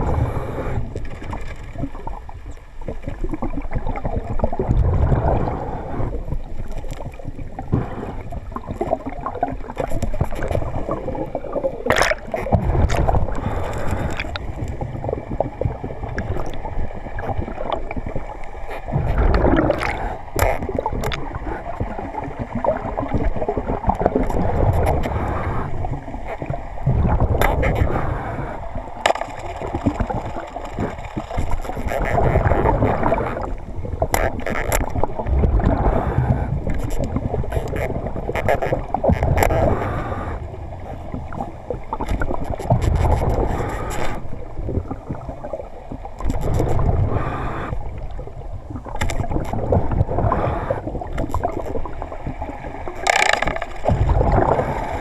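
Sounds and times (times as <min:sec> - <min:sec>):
muffled water rushing: 0:00.0 - 0:55.0
sharp clicks or knocks: 0:53.0 - 0:54.0.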